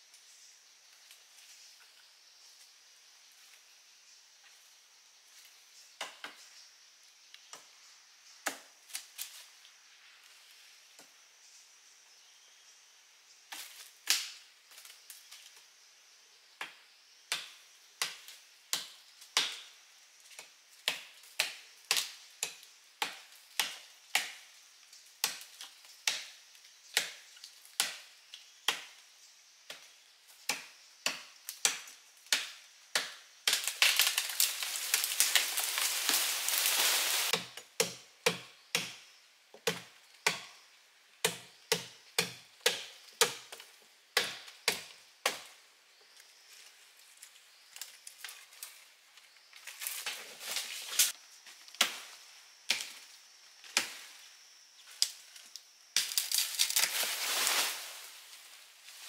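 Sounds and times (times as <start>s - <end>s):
blade chopping branches: 30.4s - 39.0s
leafy branches rustling: 33.5s - 37.4s, 46.5s - 53.1s, 53.7s - 59.0s.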